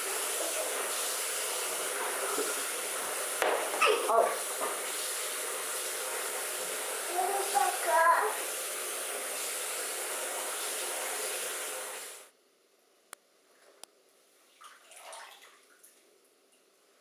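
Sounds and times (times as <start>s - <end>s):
tap running into bathtub: 1.9s - 5.1s.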